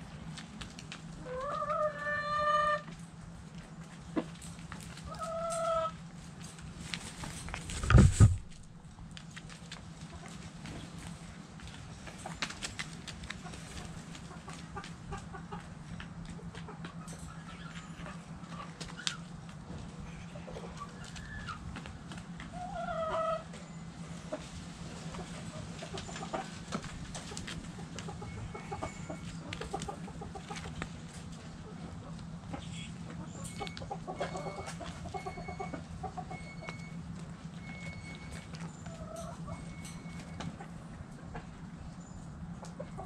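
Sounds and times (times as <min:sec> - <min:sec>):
hens clucking: 0:00.7 - 0:03.1, 0:04.1 - 0:06.1, 0:09.9 - 0:43.0
steady low hum: 0:05.9 - 0:22.7.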